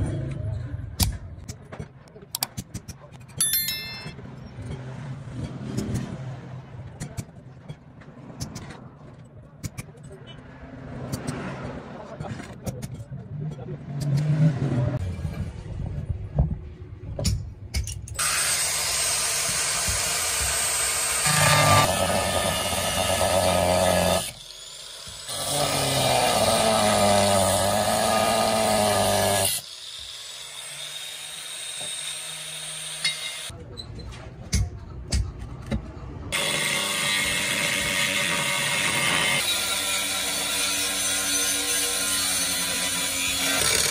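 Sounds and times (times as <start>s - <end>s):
angle grinder cutting steel: 18.2s - 33.5s, 36.4s - 43.9s.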